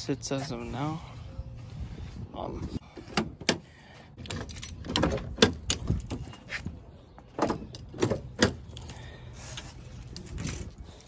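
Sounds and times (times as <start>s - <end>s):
keys jangling: 4.2s - 6.6s.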